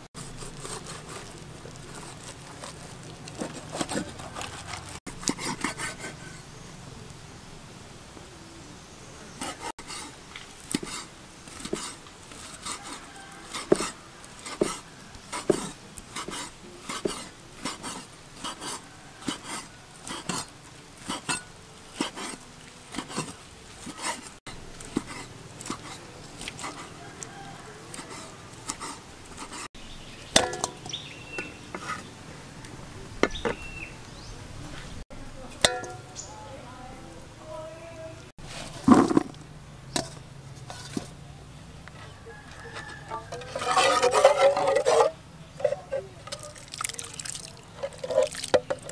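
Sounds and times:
cleaver chopping on wooden board: 15.4 - 17.2.

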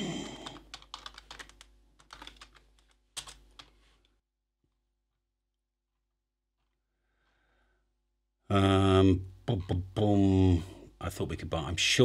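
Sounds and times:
typing on keyboard: 0.2 - 3.7.

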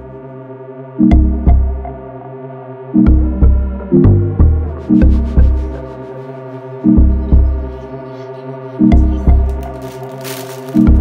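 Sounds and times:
sustained music chords: 0.0 - 11.0
heavy bass beats: 3.1 - 6.0, 8.9 - 9.9.

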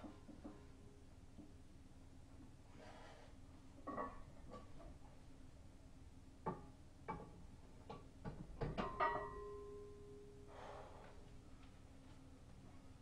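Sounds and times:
metal ringing tone: 8.9 - 10.4.

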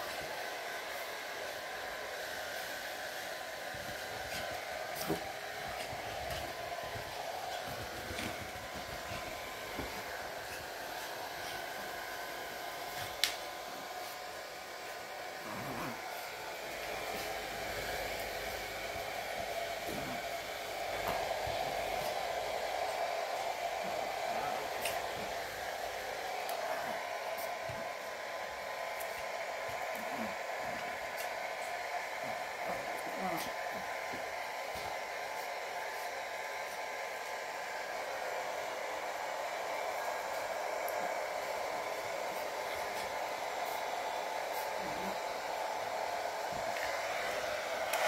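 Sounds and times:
hair dryer blowing: 0.0 - 48.0.

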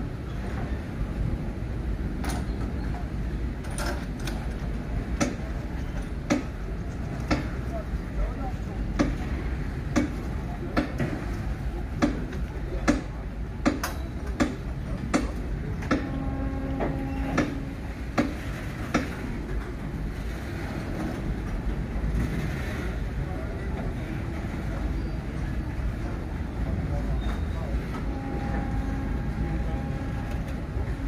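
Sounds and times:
train rumble: 0.0 - 31.0
train wheels clacking over rail joint: 2.2 - 7.7, 9.9 - 19.8
brief steady tone: 15.9 - 17.7, 27.2 - 31.0.

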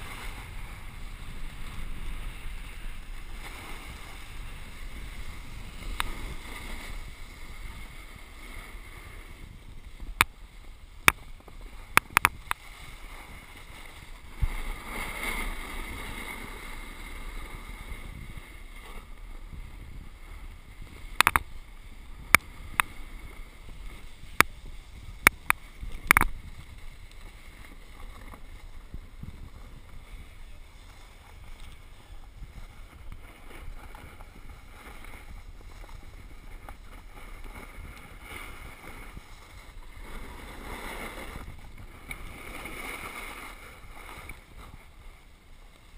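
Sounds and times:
snowboard sliding on snow: 0.0 - 45.9
sharp clicks and knocks: 21.2 - 21.4.

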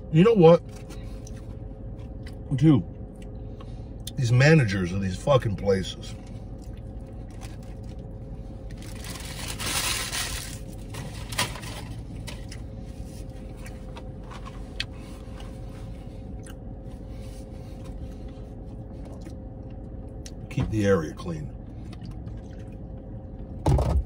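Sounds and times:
car interior hum: 0.0 - 24.0
person chewing: 6.5 - 8.1, 16.2 - 16.7
paper wrapper crinkling: 8.7 - 12.0.

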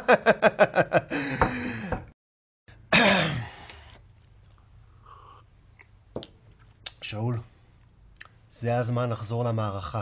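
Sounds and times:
man laughing: 0.0 - 1.8
man sighing loudly: 1.1 - 2.0.

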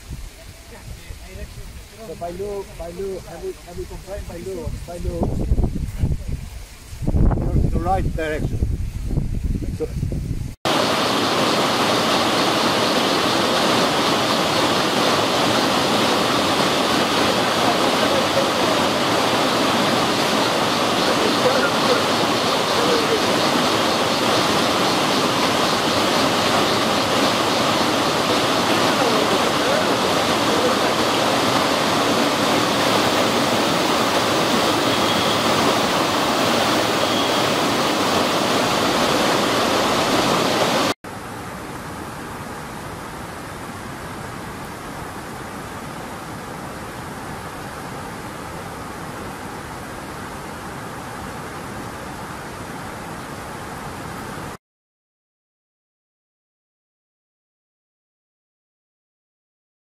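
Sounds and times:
stream rushing over boulders: 10.7 - 54.6.

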